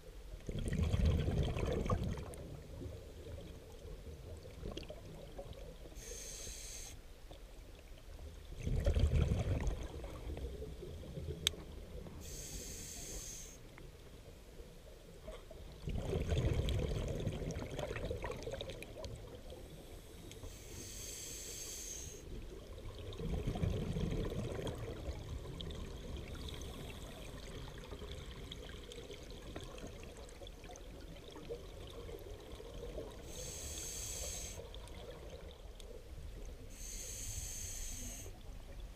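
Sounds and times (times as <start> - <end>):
exhaled bubbles gushing: 0.4 - 3.5, 8.6 - 10.4, 15.8 - 19.4, 22.6 - 26.5
regulator inhale hiss: 5.9 - 7.1, 12.2 - 13.7, 19.6 - 22.4, 33.2 - 34.8, 36.6 - 38.4.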